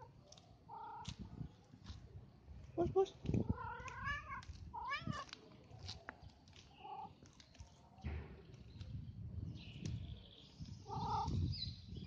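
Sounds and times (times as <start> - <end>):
cat meowing: 3.5 - 5.3.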